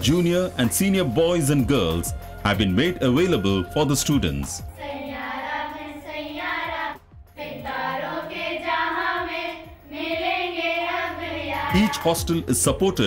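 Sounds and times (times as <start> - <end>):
girls singing together: 4.7 - 12.3.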